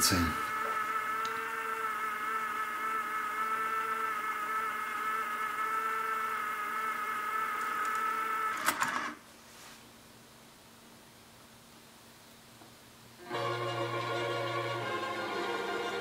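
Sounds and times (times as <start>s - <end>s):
cassette deck rewinding whine: 0.0s - 9.2s, 13.3s - 16.0s.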